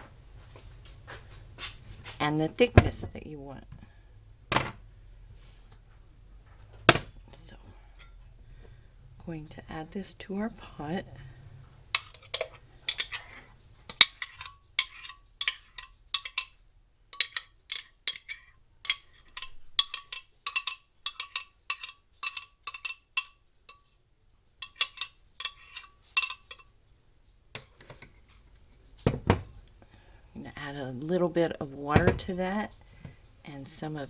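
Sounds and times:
metal spoon clinking in glass jar: 0:13.9 - 0:24.0, 0:24.6 - 0:26.7.

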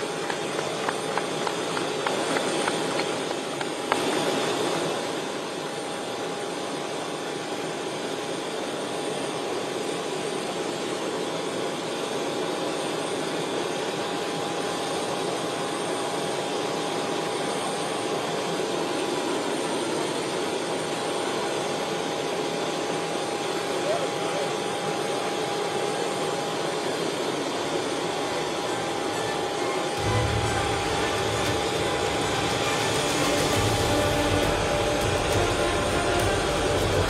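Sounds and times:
jet airliner rushing whine: 0:00.0 - 0:37.0
steady pitched tone: 0:28.6 - 0:37.0.

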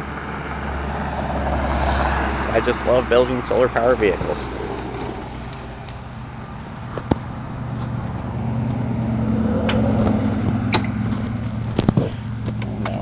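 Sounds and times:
electric golf cart motor hum: 0:02.5 - 0:13.0.

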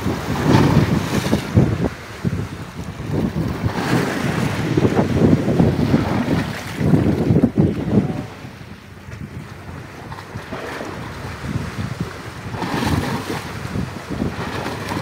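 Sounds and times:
wash of surf: 0:00.0 - 0:08.8
wind buffeting microphone: 0:00.0 - 0:15.0.

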